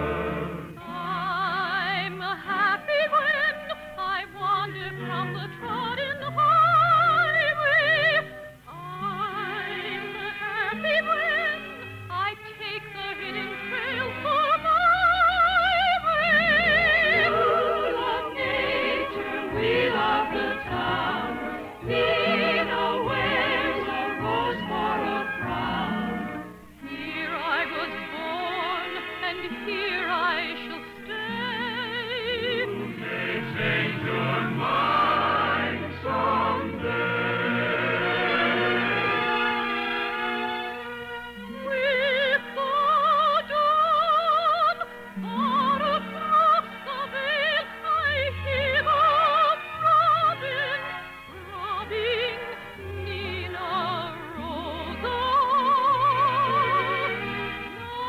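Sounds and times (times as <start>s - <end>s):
operetta singing with orchestra: 0.0s - 58.0s.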